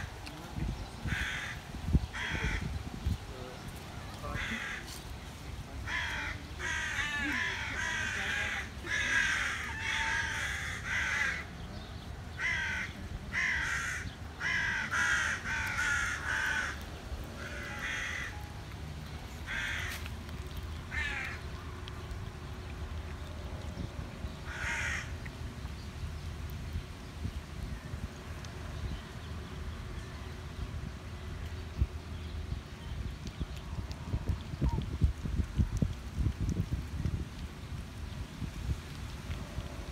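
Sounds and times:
crows cawing: 1.0s - 2.8s, 4.3s - 5.0s, 5.8s - 11.5s, 12.4s - 16.8s, 17.4s - 18.4s, 19.4s - 20.0s, 20.9s - 21.4s, 24.4s - 25.2s.

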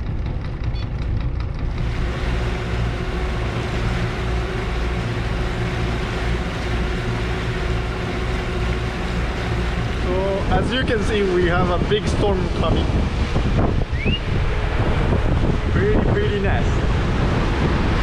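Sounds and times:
boat engines humming: 0.0s - 18.0s
wind and water rushing: 1.7s - 18.0s.

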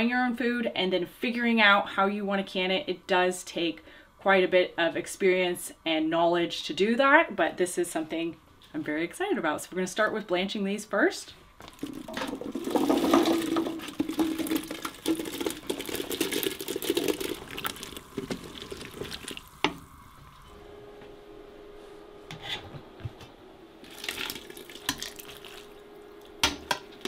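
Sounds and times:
faint steady hum: 0.0s - 27.0s
water splashing in a pot: 11.7s - 19.8s, 23.8s - 26.6s.

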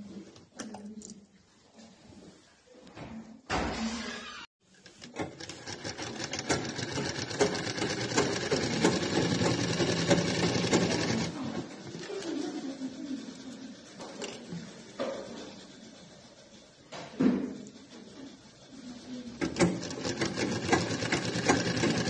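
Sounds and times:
sewing machine stitching: 4.7s - 16.8s, 17.6s - 22.0s.

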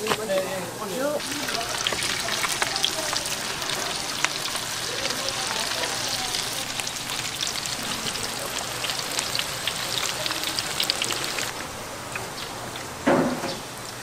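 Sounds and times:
food sizzling in hot oil: 1.0s - 11.6s.

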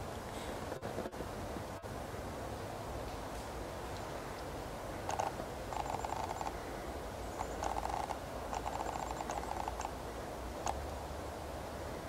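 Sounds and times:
antlers clicking and clattering: 7.4s - 9.9s.

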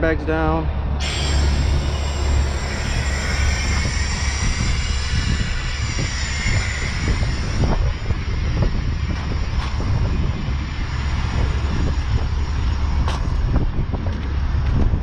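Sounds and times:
compressed air hissing: 1.0s - 7.8s.

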